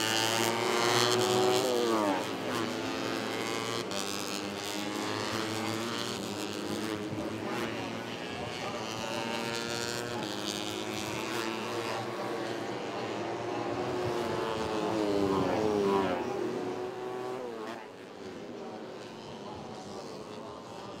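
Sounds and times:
motorcycle engines revving: 0.0s - 21.0s
motorcycles passing by: 0.0s - 21.0s.

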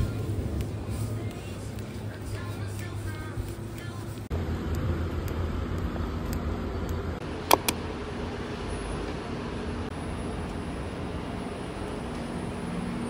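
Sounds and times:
traffic rumble: 0.0s - 13.0s
sharp clicks: 4.7s - 7.8s.

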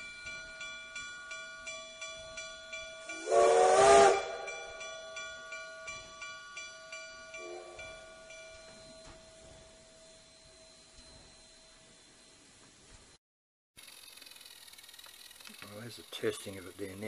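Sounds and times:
ringing chime tone: 0.0s - 3.4s, 4.4s - 13.2s
steam hissing: 3.1s - 4.7s
steam locomotive whistle: 3.1s - 4.8s.

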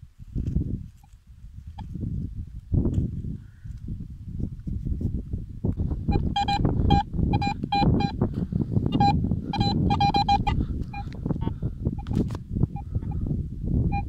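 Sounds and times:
metal detector beeps: 6.1s - 8.2s, 8.9s - 11.2s.

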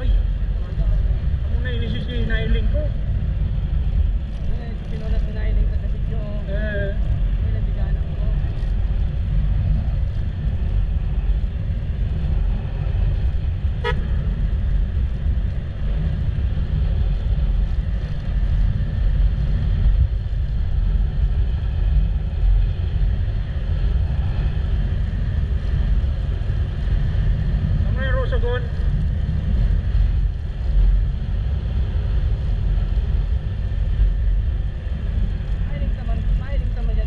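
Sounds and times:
motorcycle engine rumble: 0.0s - 37.0s
wind on microphone: 0.0s - 37.0s
vehicle horn beep: 13.8s - 14.3s.

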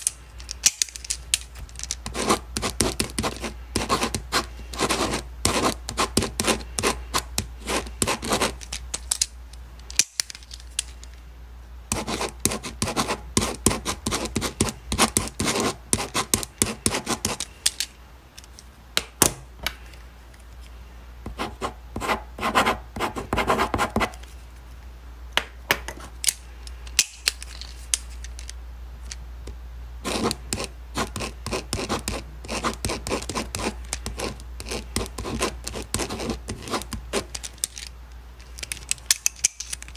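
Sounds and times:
ballpoint pen writing on paper: 2.0s - 8.6s, 11.9s - 17.4s, 21.3s - 24.1s, 30.0s - 37.3s.

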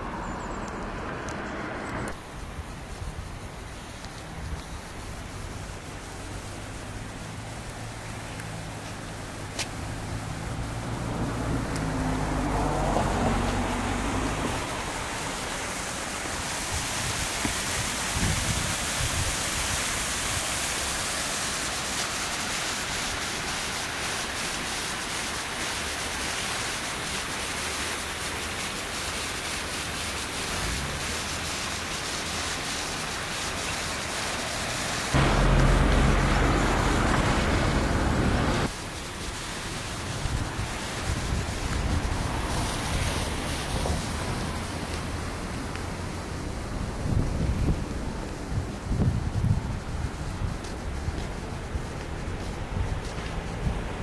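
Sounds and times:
river water rushing: 0.0s - 47.0s
wind buffeting microphone: 16.6s - 20.5s, 39.8s - 45.2s, 46.4s - 54.0s.

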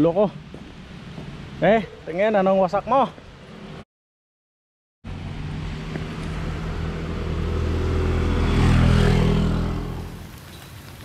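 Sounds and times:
vehicle passing on wet road: 5.1s - 11.0s.

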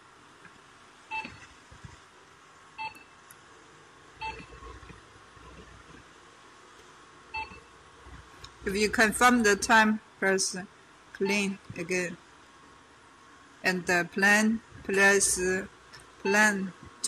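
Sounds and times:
control panel beeps: 1.1s - 1.4s, 4.2s - 4.6s, 7.4s - 7.6s.

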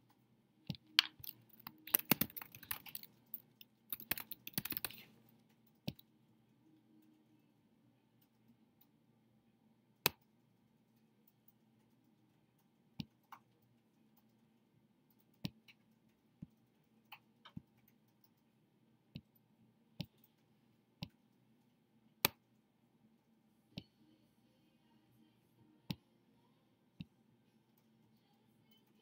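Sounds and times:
computer mouse clicking: 0.0s - 6.1s.

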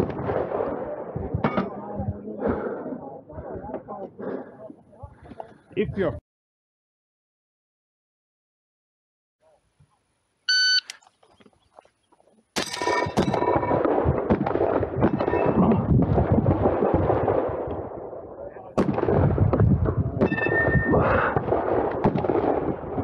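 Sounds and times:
shot timer beep: 10.5s - 10.9s
metallic clangs of steel plates: 12.6s - 13.7s
shotgun firing rapidly: 18.8s - 23.0s.

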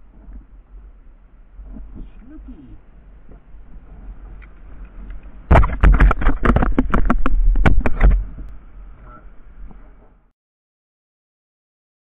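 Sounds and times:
sharp knocks and clatters: 5.5s - 8.5s.

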